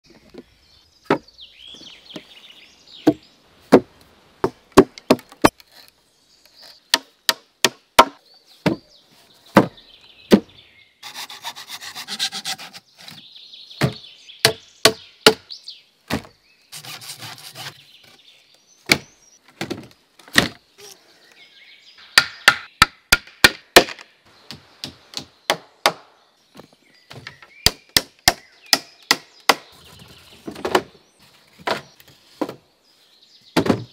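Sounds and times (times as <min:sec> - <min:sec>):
axe chopping logs: 0:03.0 - 0:05.6, 0:06.9 - 0:08.9, 0:09.5 - 0:10.5, 0:13.8 - 0:15.5, 0:16.1 - 0:16.4, 0:18.9 - 0:20.6, 0:22.2 - 0:26.1, 0:27.1 - 0:29.7, 0:33.6 - 0:33.9
rough scraping on wood: 0:05.3 - 0:06.8, 0:11.0 - 0:13.2, 0:16.7 - 0:18.2.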